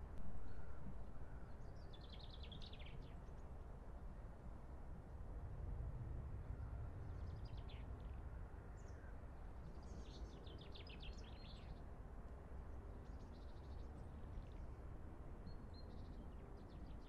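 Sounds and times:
low background rumble: 0.0s - 3.4s
songbird singing: 0.1s - 3.0s.

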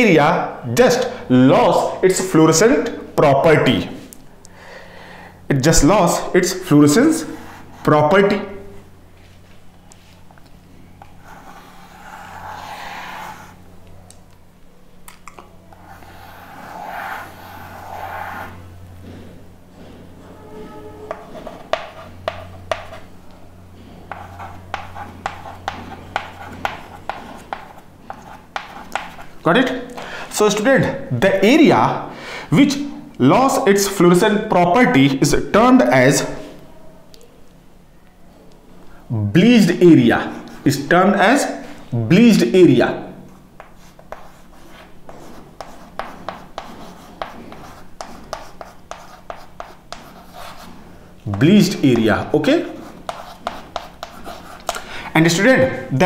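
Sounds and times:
chalk tapping on chalkboard: 21.1s - 23.1s, 24.1s - 29.3s, 43.6s - 54.8s.

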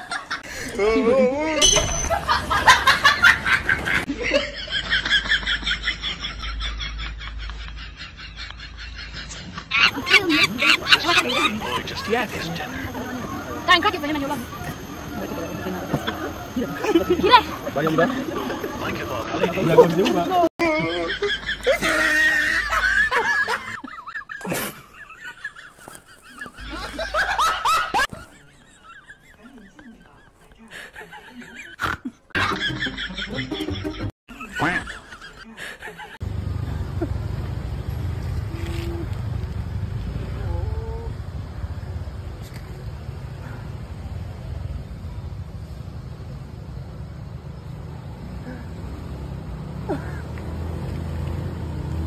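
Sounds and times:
high thin cackling laugh: 1.6s - 12.4s, 20.8s - 36.2s
rhythmic snickering laugh: 2.1s - 13.6s, 14.2s - 36.2s
high-pitched squeaky animal calls: 9.7s - 11.6s.

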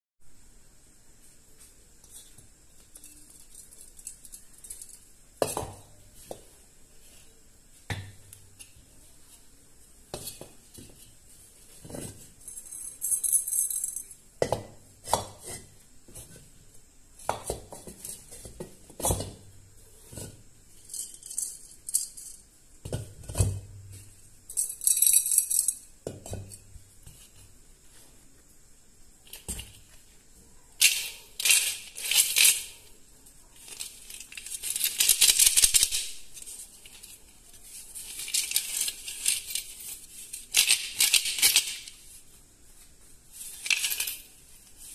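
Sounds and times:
coins rattling in clay pots: 2.8s - 5.3s, 12.3s - 14.3s, 20.8s - 22.5s, 24.5s - 26.6s, 30.8s - 32.9s, 33.6s - 42.1s, 43.4s - 44.9s.

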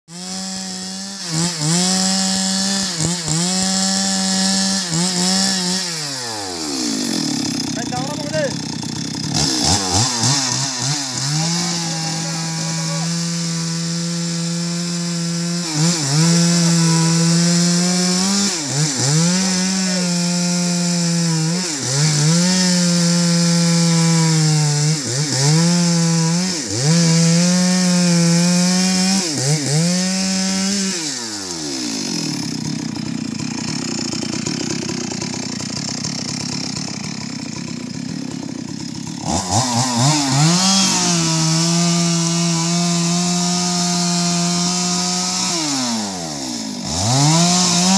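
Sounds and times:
chainsaw cutting through log: 0.1s - 47.9s.

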